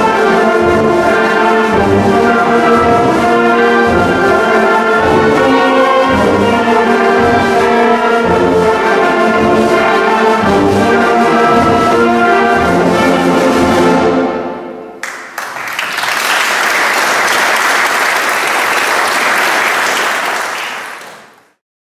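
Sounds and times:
wind band holding a chord: 0:00.0 - 0:15.0
audience applause: 0:15.0 - 0:21.6.

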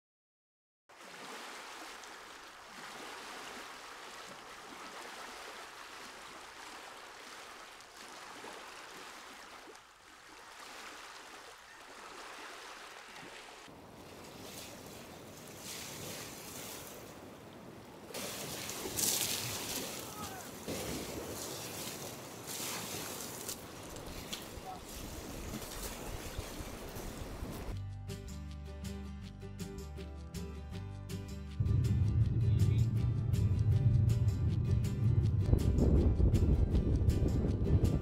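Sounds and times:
small waves washing: 0:00.9 - 0:27.7
waves breaking on pebbles: 0:00.9 - 0:27.7
wind rumble: 0:31.6 - 0:38.0.

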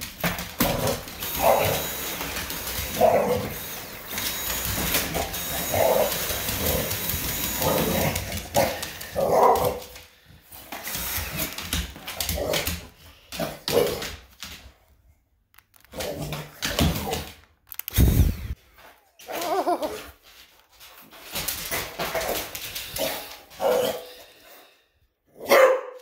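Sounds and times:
vacuum motor hissing: 0:01.1 - 0:08.1
dog barking: 0:25.4 - 0:26.0.

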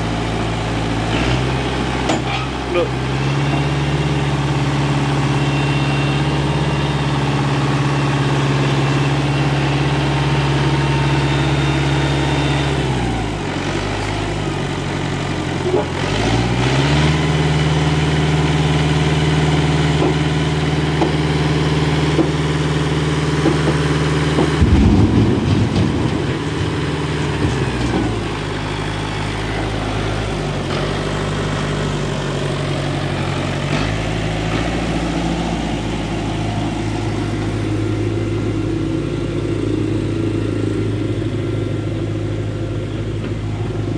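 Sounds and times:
tractor diesel engine running: 0:00.0 - 0:43.9.

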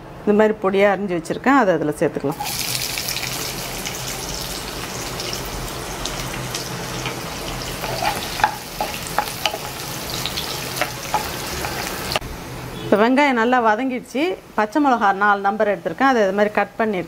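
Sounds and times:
onion sizzling in oil: 0:02.3 - 0:12.2
spatula scraping a pan: 0:07.0 - 0:12.2.

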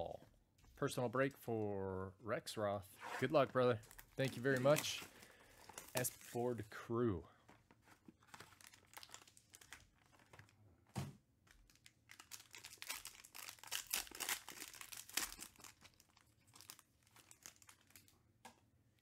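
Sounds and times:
foil wrapper crinkling and tearing: 0:03.8 - 0:06.5, 0:08.2 - 0:10.5, 0:11.5 - 0:18.2.

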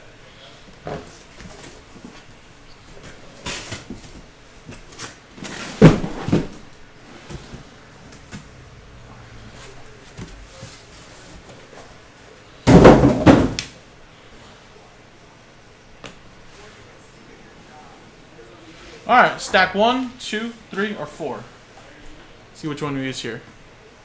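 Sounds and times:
cardboard boxes knocking: 0:12.7 - 0:13.7
knocking and rustling: 0:12.7 - 0:13.7.

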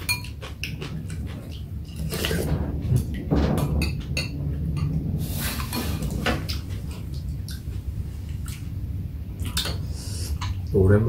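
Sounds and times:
low background rumble: 0:00.0 - 0:11.0.

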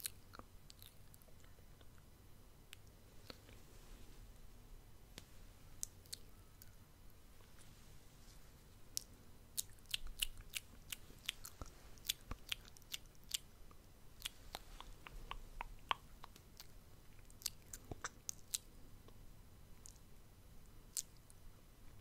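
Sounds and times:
mouth clicks and pops: 0:14.2 - 0:16.7.

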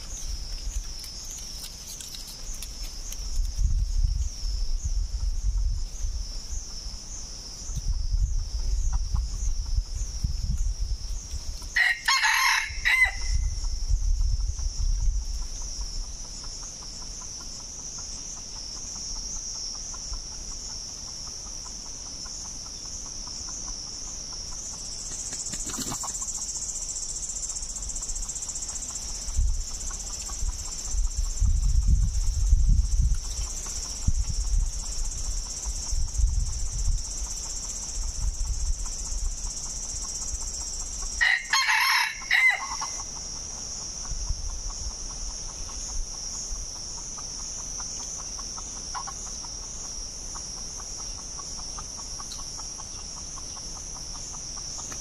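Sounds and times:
insects droning: 0:00.0 - 0:55.0
rooster crowing: 0:11.8 - 0:13.5, 0:41.2 - 0:43.0.

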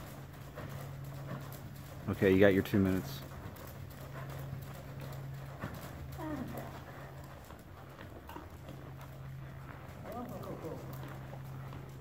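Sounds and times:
hoofbeats on sand: 0:00.0 - 0:12.0
low hum: 0:00.0 - 0:12.0.

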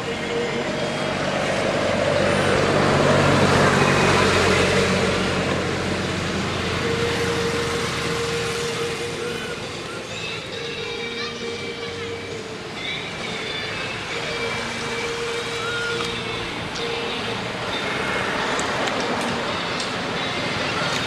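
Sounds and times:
vehicle driving past: 0:00.0 - 0:10.0.

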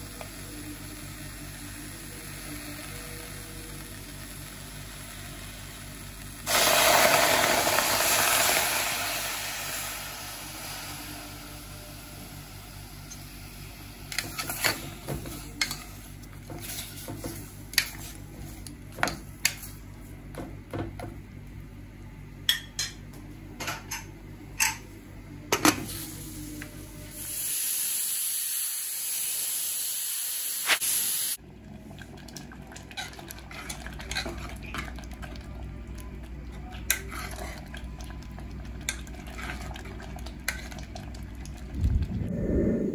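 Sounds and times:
pressure cooker steam hiss: 0:06.4 - 0:12.6, 0:27.1 - 0:31.4.

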